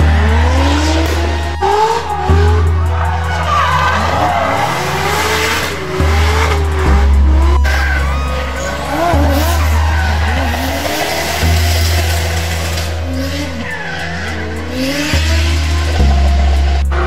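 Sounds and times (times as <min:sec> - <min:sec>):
car engine revving: 0:00.0 - 0:17.0
tyres squealing: 0:00.0 - 0:17.0.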